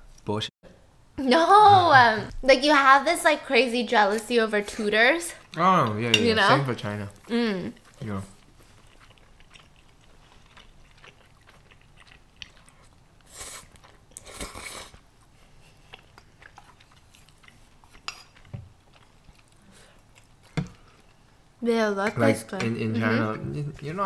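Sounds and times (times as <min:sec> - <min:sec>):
wet chewing clicks: 0:07.2 - 0:15.1, 0:15.8 - 0:21.2.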